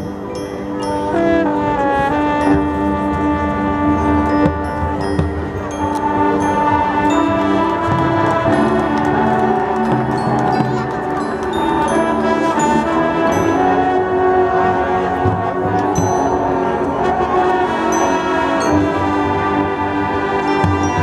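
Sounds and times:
high ringing notes: 0.0s - 15.1s
brass band chords: 0.0s - 21.0s.

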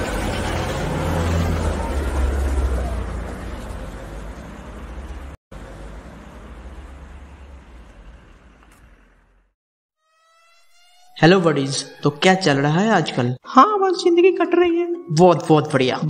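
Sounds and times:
bus engine rumble: 0.0s - 9.5s
road noise: 0.0s - 9.6s.

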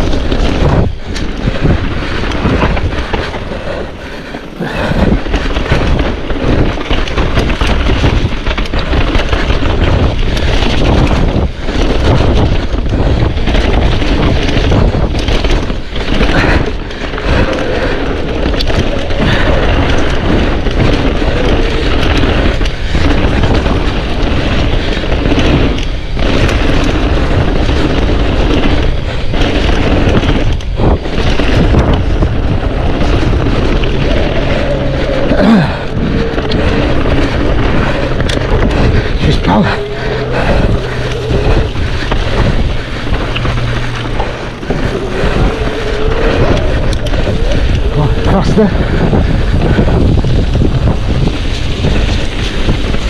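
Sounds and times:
bike knocks and rattles: 0.0s - 53.0s
tyre rumble: 0.0s - 53.0s
wind buffeting microphone: 0.0s - 53.0s.

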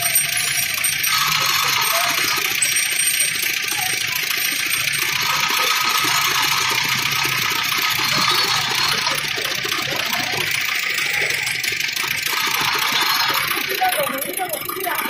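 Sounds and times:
cane ticking through steel rollers: 0.0s - 15.0s
juice press motor humming: 0.0s - 15.0s.

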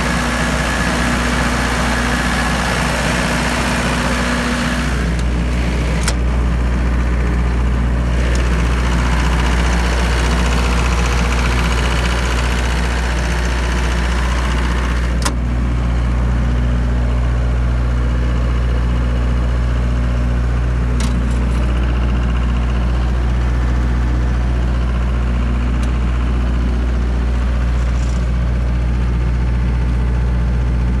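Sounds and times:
diesel generator humming: 0.0s - 31.0s.

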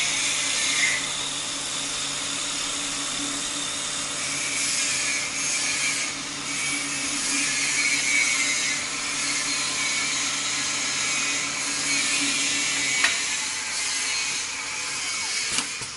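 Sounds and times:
cutters shaving wood: 0.0s - 15.9s
lathe whirring hum: 0.0s - 15.9s.

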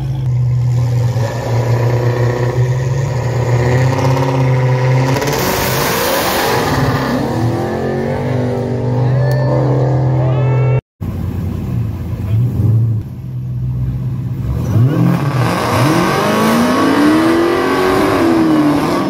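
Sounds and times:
drag car engines revving: 0.0s - 19.0s
car launching and accelerating: 0.6s - 10.2s, 14.3s - 19.0s.

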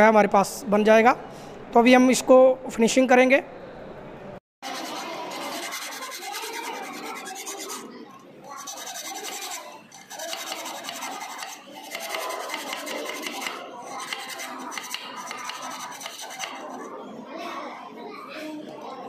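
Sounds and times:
hand file rasping on metal: 4.6s - 7.9s, 8.5s - 16.8s.

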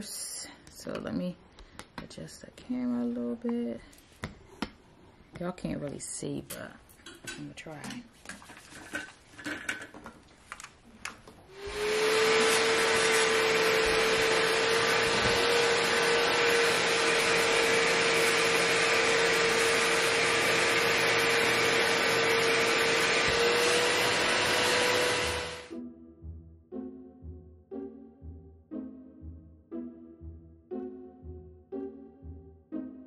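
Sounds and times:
loud suction noise: 11.5s - 25.7s
spot cleaner motor whining: 11.5s - 25.7s.

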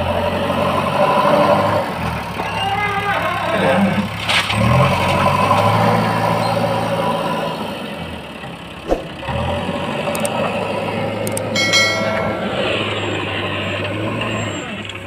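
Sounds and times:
diesel engine revving: 0.0s - 2.6s, 3.4s - 15.0s
sharp knock: 8.9s - 9.2s.

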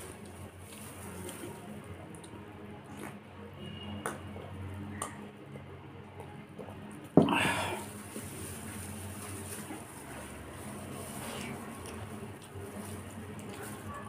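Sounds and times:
hand squishing food: 7.3s - 14.0s
wet chewing: 10.9s - 14.0s.

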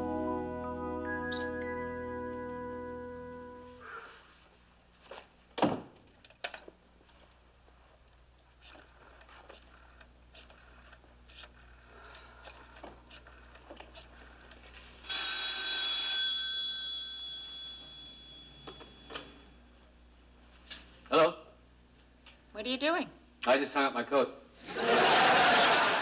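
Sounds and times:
telephone bell ringing: 15.0s - 19.5s.

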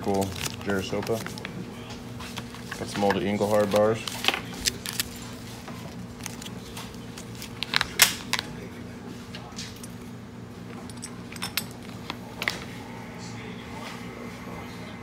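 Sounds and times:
low electrical hum: 0.0s - 15.0s
metal bars clinking: 10.8s - 12.0s.

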